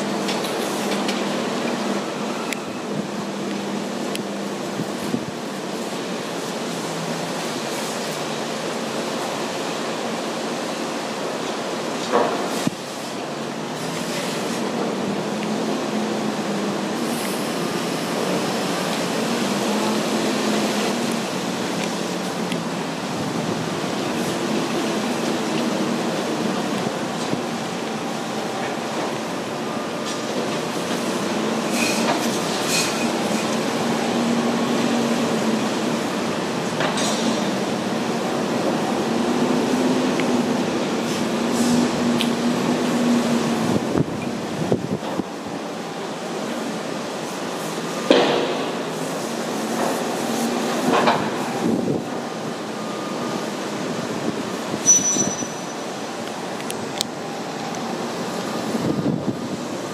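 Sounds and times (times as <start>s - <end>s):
construction machinery humming: 0.0s - 59.9s.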